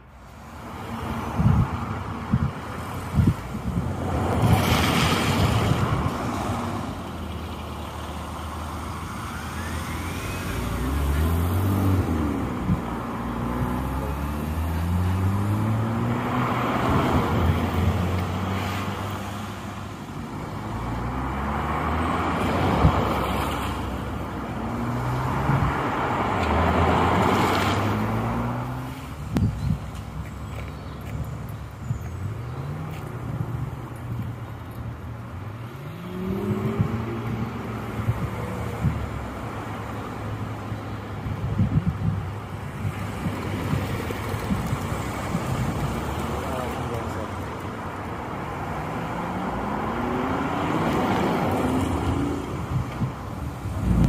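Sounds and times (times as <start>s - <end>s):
cars passing: 0.0s - 54.0s
cars accelerating away: 7.8s - 19.5s, 35.6s - 39.2s, 53.7s - 54.0s.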